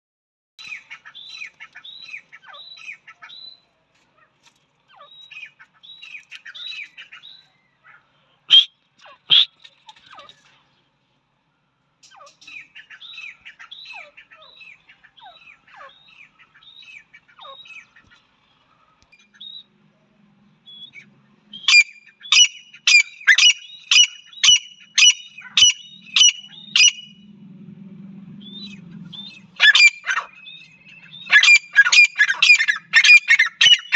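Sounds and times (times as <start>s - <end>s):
loud bird calls: 0.6s - 11.0s, 12.0s - 27.3s, 28.3s - 33.9s
birds chirping softly: 0.6s - 27.5s, 28.2s - 33.9s.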